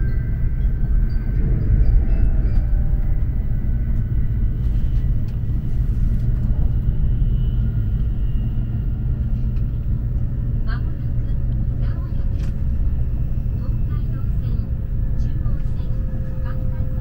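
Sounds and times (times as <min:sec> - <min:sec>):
train rumble inside passenger car: 0:00.0 - 0:17.0.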